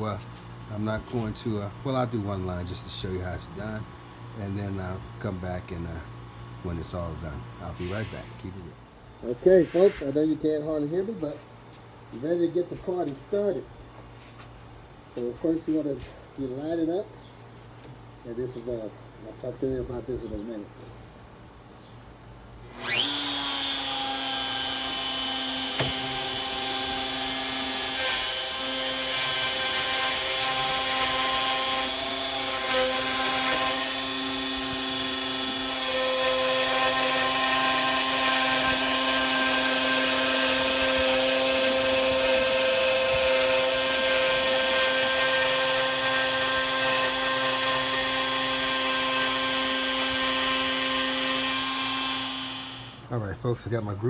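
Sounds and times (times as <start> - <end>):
electric router whining: 22.7 - 53.0.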